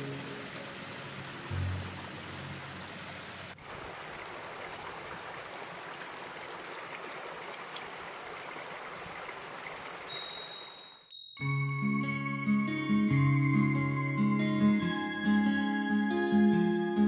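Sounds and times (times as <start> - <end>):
shallow stream running: 0.0 - 10.9.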